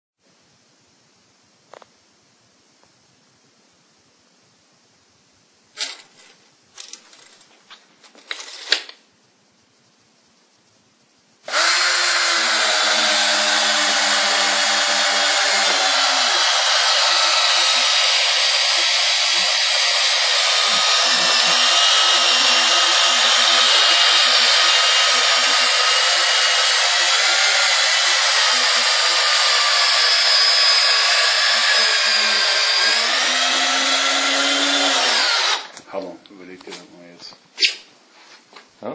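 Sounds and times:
cordless drill driving screw into wood: 11.5 - 35.8.

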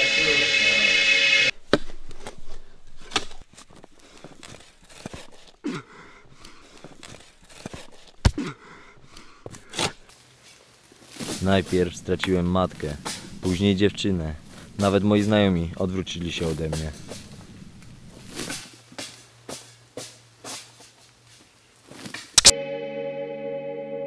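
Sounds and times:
background music: 0.0 - 1.5, 22.4 - 24.0
sandy soil dug by hand: 2.2 - 5.6, 9.6 - 22.4.

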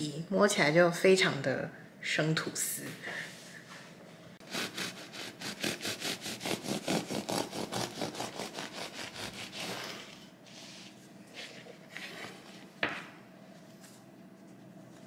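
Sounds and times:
knife sawing through bread: 4.4 - 10.2.

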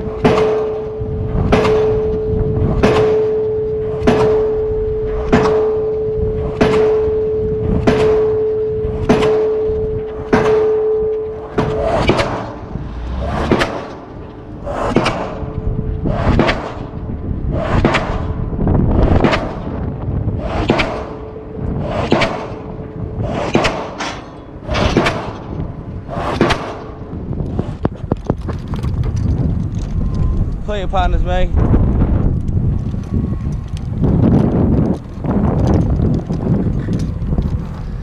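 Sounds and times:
pile hammer striking: 0.0 - 15.6, 16.3 - 17.0, 17.8 - 18.4, 19.2 - 19.9, 20.6 - 27.0.

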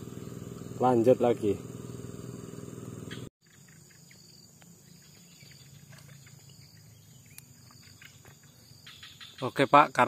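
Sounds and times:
low hum: 0.0 - 3.3
insects chorus: 0.0 - 10.0.

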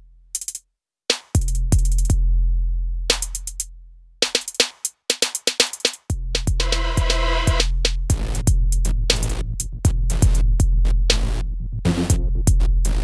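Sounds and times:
electronic music with drum-machine beat: 3.1 - 13.0.

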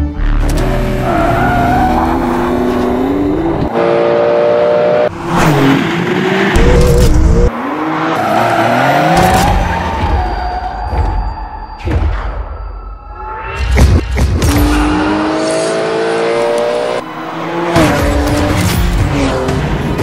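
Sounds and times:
car engine revving and accelerating: 0.3 - 9.8, 14.4 - 20.0.

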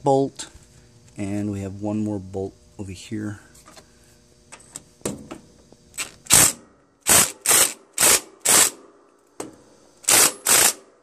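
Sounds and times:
cordless driver bursts: 6.0 - 8.8, 10.0 - 10.9.

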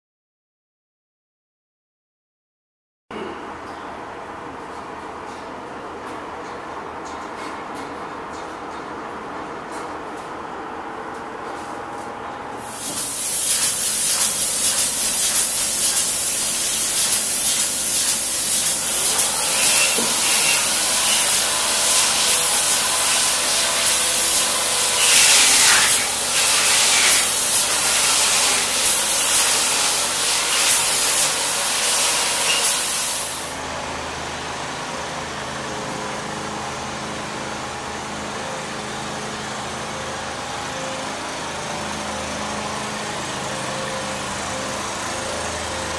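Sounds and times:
spray foam gun hissing: 12.6 - 33.6.

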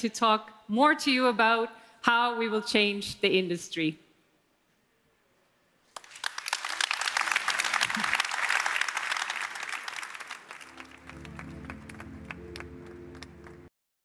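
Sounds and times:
audience applauding: 6.0 - 13.7
music: 10.5 - 13.7.

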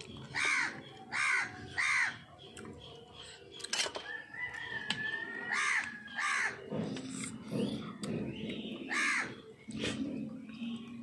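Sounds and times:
crow cawing: 0.3 - 2.2, 5.5 - 6.6, 8.9 - 9.3.

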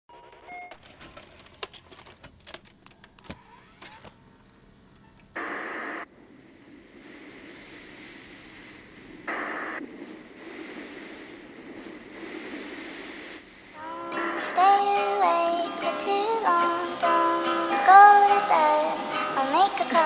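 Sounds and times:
tape playback hiss: 0.3 - 20.0
tape player mechanism clunking: 0.7 - 4.2.

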